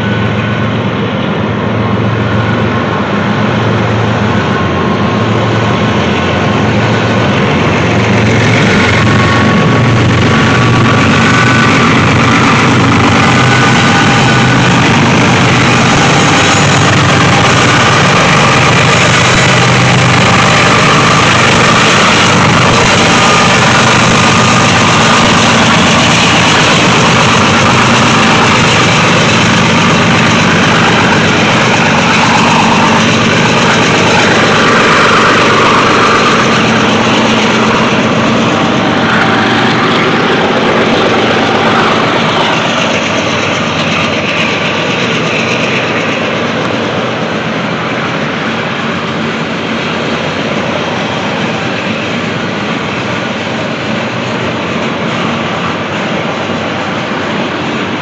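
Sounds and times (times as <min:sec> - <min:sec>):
diesel locomotives under power: 0:00.0 - 0:58.0
freight wagons rolling on rails: 0:00.0 - 0:58.0.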